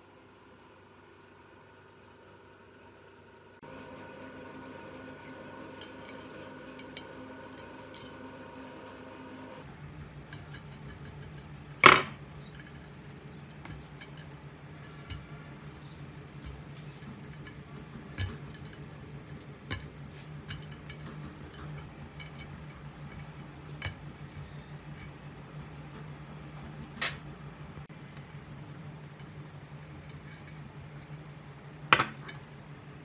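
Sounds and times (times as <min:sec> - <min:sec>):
low steady hum: 0:00.0 - 0:33.0
screwdriver clicking on tube parts: 0:20.5 - 0:25.1.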